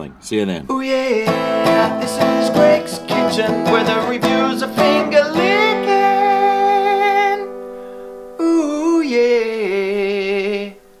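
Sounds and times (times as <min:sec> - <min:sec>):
person singing jingle with vibrato: 0:00.8 - 0:07.7.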